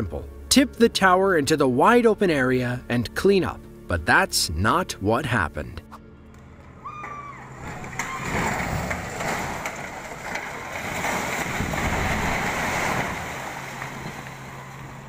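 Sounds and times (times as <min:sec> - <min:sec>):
concrete tower collapsing rumble: 0:06.9 - 0:15.0.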